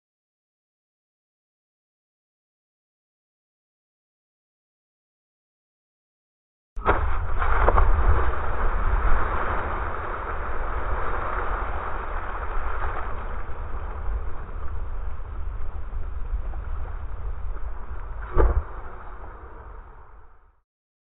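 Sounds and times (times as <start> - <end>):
water splashing and churning: 6.8 - 20.3
wind rumbling on microphone: 6.8 - 20.6.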